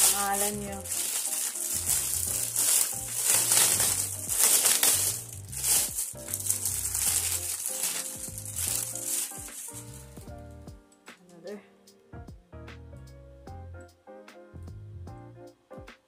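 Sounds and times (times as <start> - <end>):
plastic bag crinkling: 0.0 - 10.2
background music with bass line: 0.0 - 10.9, 12.2 - 16.0.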